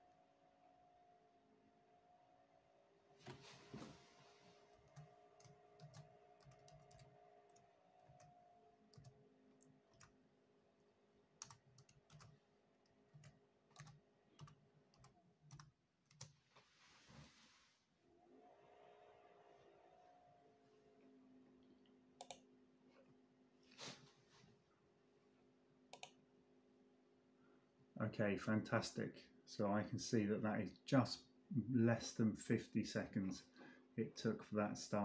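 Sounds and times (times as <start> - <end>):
laptop keyboard keystrokes: 4.8 - 7.1.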